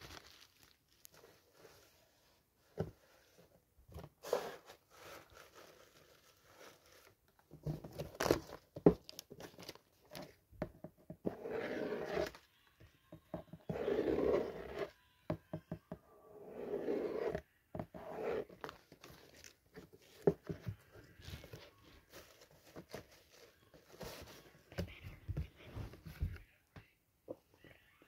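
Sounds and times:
tissue paper crinkling: 0:00.0 - 0:02.1, 0:04.9 - 0:07.2
fingers scratching across paper: 0:11.2 - 0:12.4, 0:13.6 - 0:14.9, 0:16.4 - 0:18.8.

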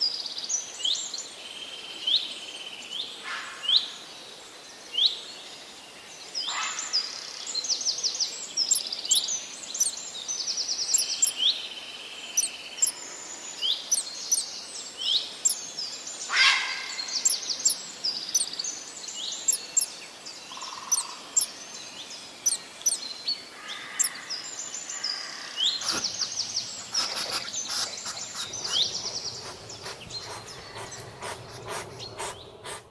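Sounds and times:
small songbirds singing: 0:07.4 - 0:32.9
dry clicks: 0:19.5 - 0:19.9.

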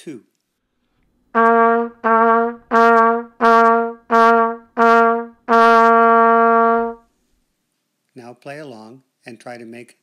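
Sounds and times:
trumpet playing low note: 0:01.3 - 0:07.0.

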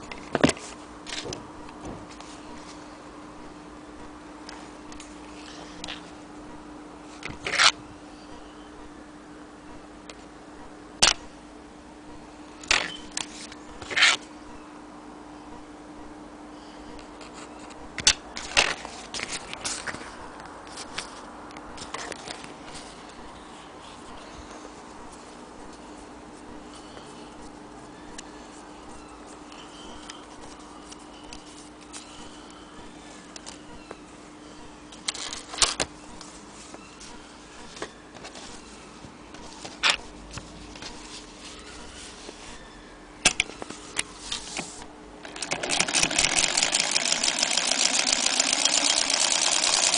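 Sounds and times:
steady low hum: 0:00.0 - 0:49.9
small clicks and scrapes: 0:07.2 - 0:07.8
sewing machine clicks: 0:45.2 - 0:49.9.

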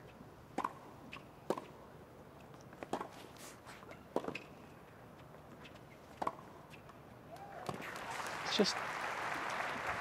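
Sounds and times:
racket striking tennis ball: 0:00.5 - 0:01.8, 0:02.8 - 0:03.1, 0:04.1 - 0:04.5, 0:06.2 - 0:06.4.

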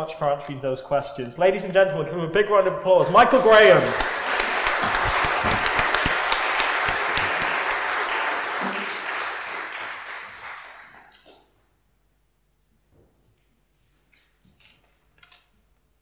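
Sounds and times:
congregation applauding: 0:03.0 - 0:11.5.

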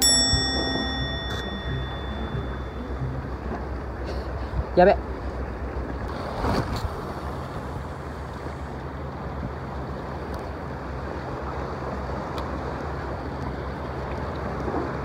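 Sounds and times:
surf washing against rocks: 0:05.8 - 0:12.8.

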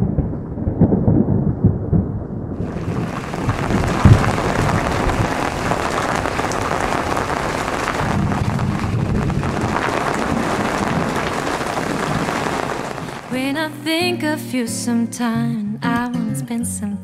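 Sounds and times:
thunder rumble: 0:00.0 - 0:13.7
heavy rain on sea: 0:00.8 - 0:13.5.

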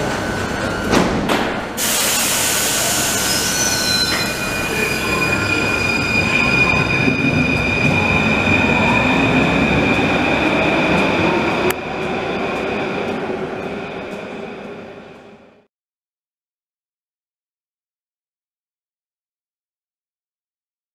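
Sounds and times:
train running noise: 0:00.0 - 0:15.7.

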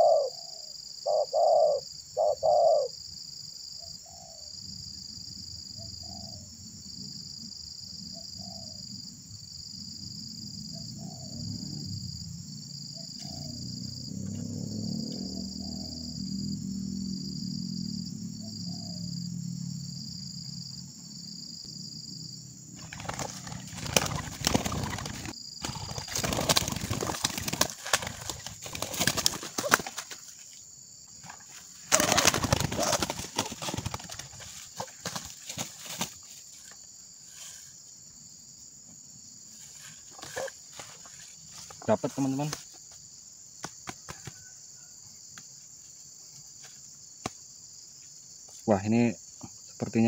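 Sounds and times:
insect drone: 0:00.0 - 0:50.0
bird wings beating: 0:22.8 - 0:30.4, 0:31.2 - 0:36.8, 0:43.6 - 0:44.5.

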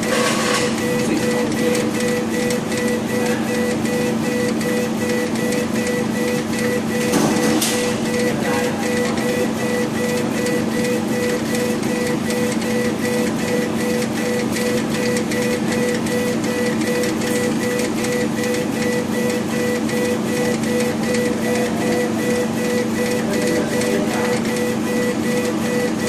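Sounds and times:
steady machine hum: 0:00.0 - 0:26.0.

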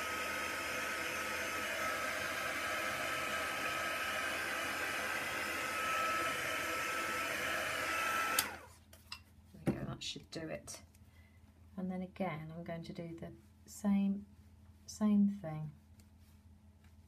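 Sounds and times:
heat gun blowing: 0:00.0 - 0:08.7.

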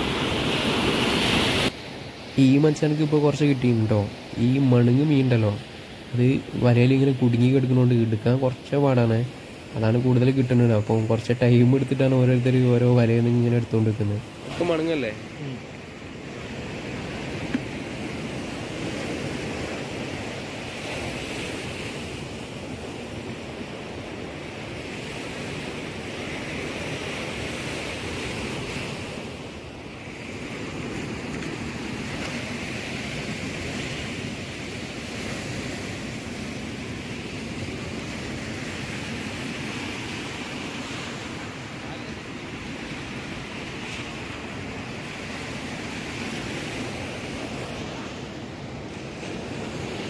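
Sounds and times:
sea surf washing on beach: 0:00.0 - 0:50.0.

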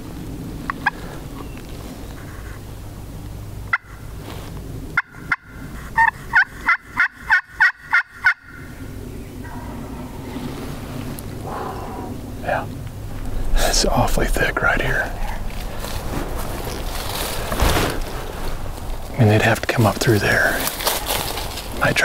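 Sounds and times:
turkey friction call yelps: 0:05.0 - 0:08.8.

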